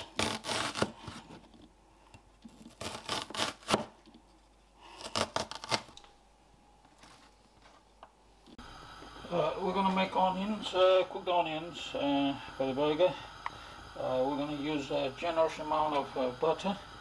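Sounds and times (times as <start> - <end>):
knife slicing onion: 0.0 - 1.5, 2.4 - 4.0, 4.6 - 6.0.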